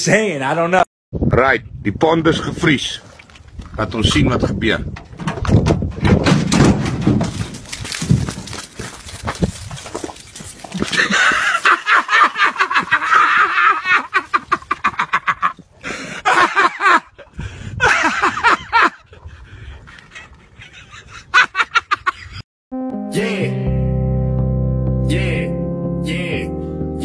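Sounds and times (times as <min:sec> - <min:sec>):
people laughing hard: 0:10.9 - 0:22.4
video game music: 0:22.7 - 0:27.0.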